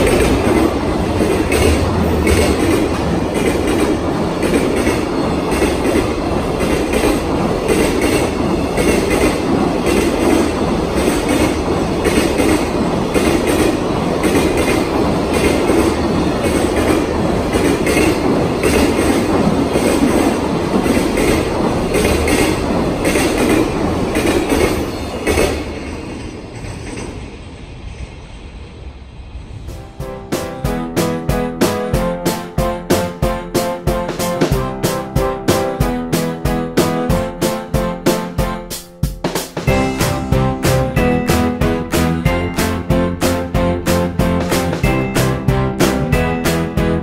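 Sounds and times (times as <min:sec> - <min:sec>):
train wheels clattering on rail joints: 0:00.0 - 0:27.4.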